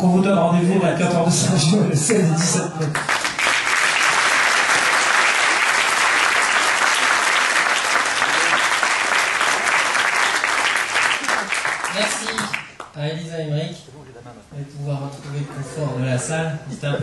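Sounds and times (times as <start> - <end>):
audience applauding: 2.5 - 13.0.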